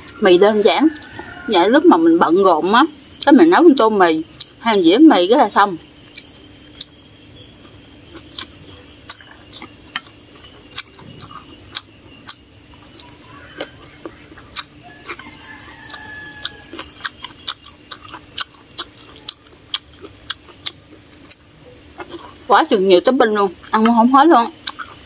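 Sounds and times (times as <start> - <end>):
person chewing with wet smacks: 4.4 - 4.6, 6.0 - 7.0, 7.6 - 22.4, 24.6 - 25.0.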